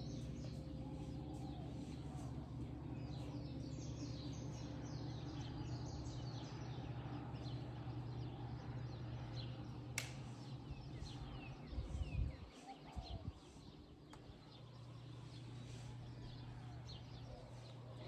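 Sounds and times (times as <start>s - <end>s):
small birds chirping: 0.0s - 18.0s
steady low hum: 0.0s - 18.0s
sharp clicks: 9.9s - 10.3s.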